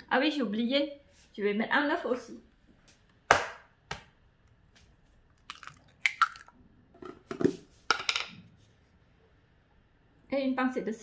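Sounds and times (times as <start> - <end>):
eggshell crackles and squishes: 5.2 - 6.6
egg cracking on bowl: 5.4 - 6.6.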